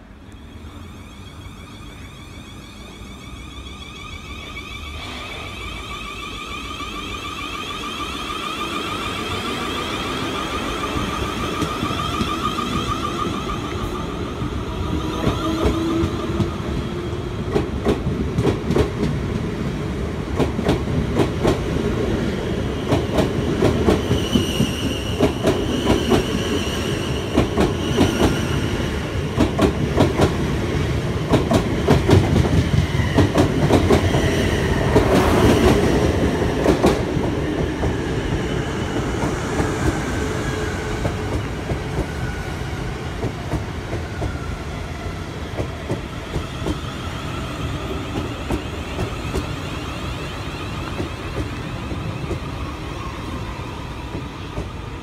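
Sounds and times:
train traction motor whine: 0.1 - 17.2.

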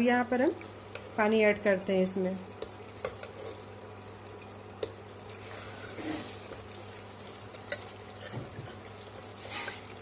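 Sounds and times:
food sizzling: 0.0 - 10.0
ladle stirring thick curry: 2.6 - 3.7.

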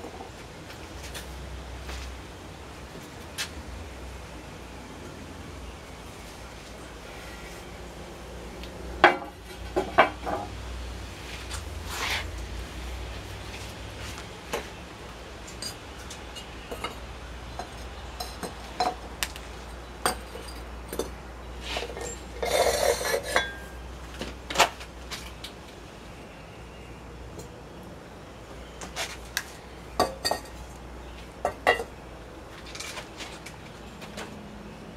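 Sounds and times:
ceramic dishes clinking: 21.8 - 23.8, 30.0 - 30.6.

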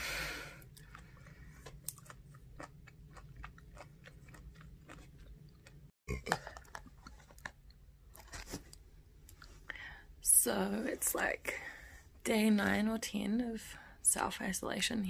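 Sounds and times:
person chewing and crunching: 0.6 - 8.6.

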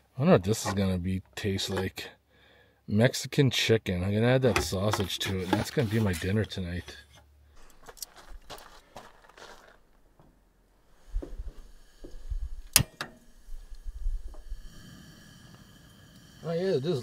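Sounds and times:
faint burner hiss: 10.8 - 17.0
sharp loud click: 12.7 - 13.2.

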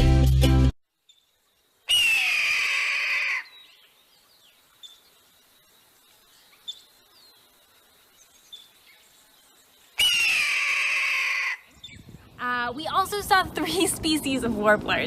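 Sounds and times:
hawk screaming: 1.9 - 3.5, 10.0 - 11.7.

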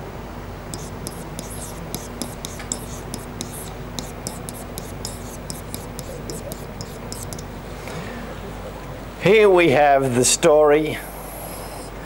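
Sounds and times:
pen scratching on whiteboard: 0.7 - 7.5.

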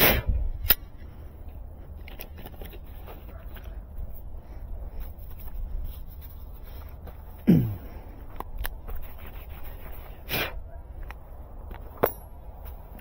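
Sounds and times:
handling noises: 0.7 - 13.0.

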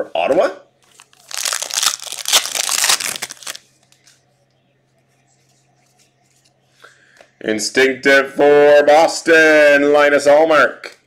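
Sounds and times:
foil wrapper tearing and crinkling: 1.0 - 3.6.

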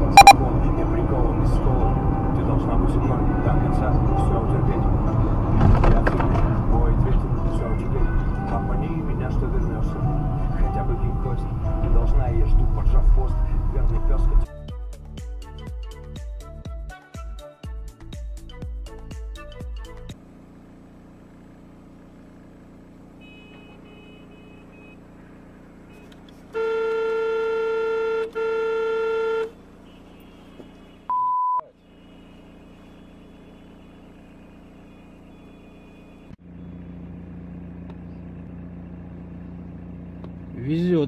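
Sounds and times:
car horn blast: 0.0 - 0.4, 23.2 - 25.1, 25.9 - 36.4
short electronic beep: 0.0 - 0.4, 31.1 - 31.8
vehicle interior hum: 0.0 - 14.4, 21.2 - 41.0.

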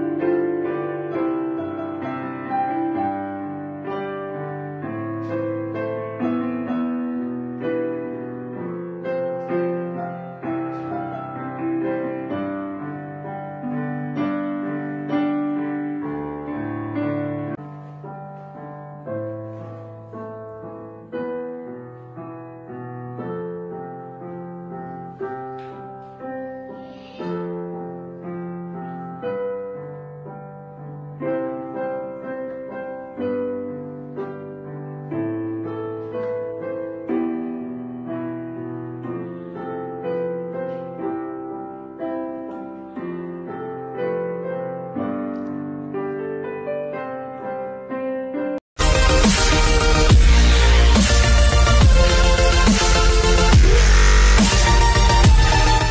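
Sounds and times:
piano music: 0.0 - 55.9.

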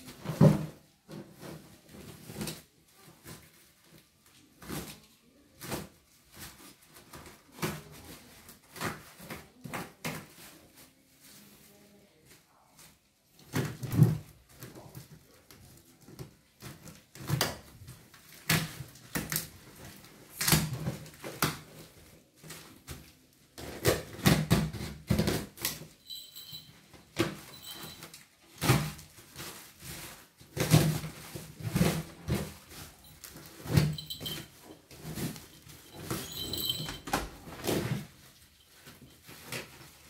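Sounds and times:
plastic wrapping crinkling: 25.9 - 26.6, 27.5 - 40.0.

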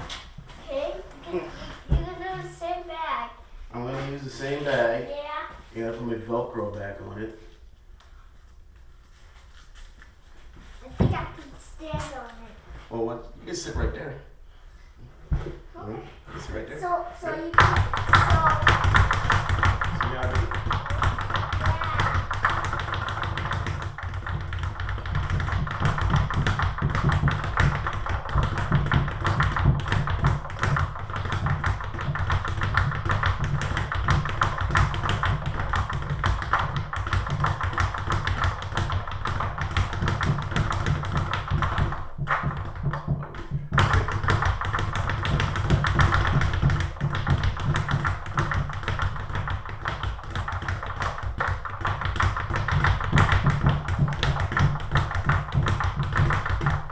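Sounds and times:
speed bag rattling: 17.5 - 56.9.

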